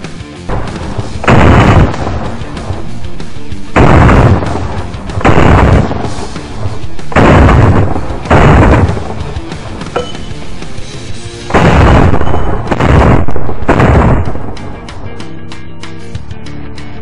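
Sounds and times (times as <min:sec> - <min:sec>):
background music: 0:00.0 - 0:17.0
rifle gunfire: 0:00.5 - 0:02.4, 0:03.7 - 0:09.4, 0:11.5 - 0:14.6.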